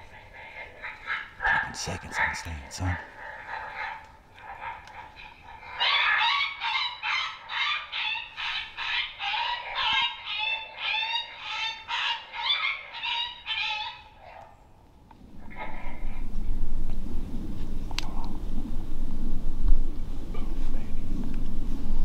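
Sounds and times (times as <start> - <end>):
coyote yelps and yips: 0.1 - 14.6.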